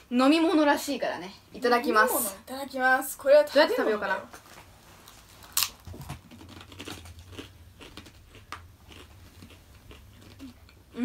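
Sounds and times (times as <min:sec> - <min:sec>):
faint chewing: 0:05.0 - 0:11.0
biting into cracker: 0:05.4 - 0:10.8.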